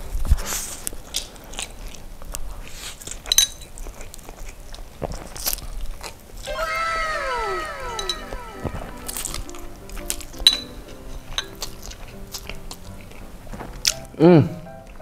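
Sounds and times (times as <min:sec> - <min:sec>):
slurping and chewing noodles: 0:00.4 - 0:06.4
falling tones sound effect: 0:06.5 - 0:09.8.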